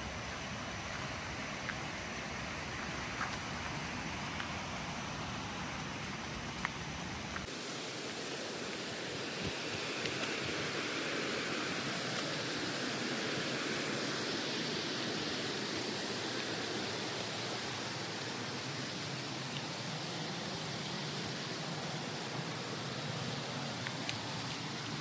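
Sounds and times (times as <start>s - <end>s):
waterfall rushing: 7.4s - 25.0s.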